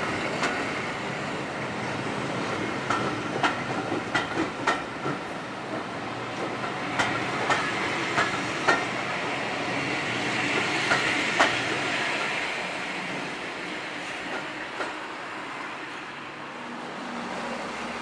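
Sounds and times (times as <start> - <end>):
train rolling noise with hiss: 0.0 - 18.0.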